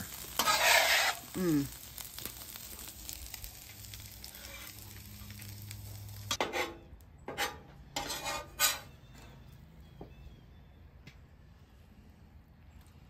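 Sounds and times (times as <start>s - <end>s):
metal spatula scraping griddle: 0.0s - 2.6s, 3.9s - 9.0s
food sizzling on a griddle: 0.0s - 6.7s.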